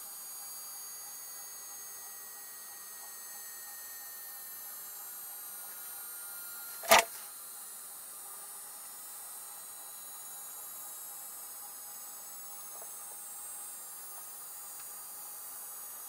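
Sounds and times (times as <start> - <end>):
sharp click: 6.8 - 7.1.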